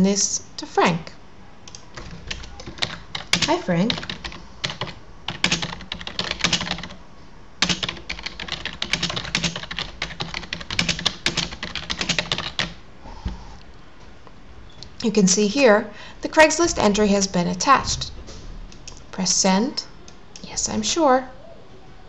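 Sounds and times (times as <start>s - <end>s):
rapid keyboard typing: 1.7s - 7.0s, 7.6s - 12.8s.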